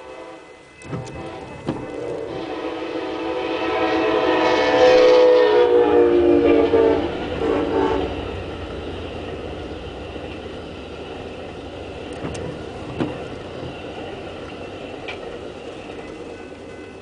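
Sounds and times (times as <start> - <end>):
train wheels rumbling on rail: 0.0 - 17.0
sharp clicks of rail: 0.8 - 2.3, 12.1 - 13.8.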